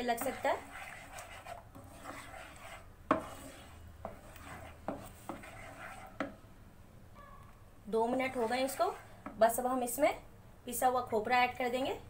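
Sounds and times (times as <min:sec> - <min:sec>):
spoon scraping a pan: 0:00.0 - 0:06.4, 0:07.9 - 0:09.5.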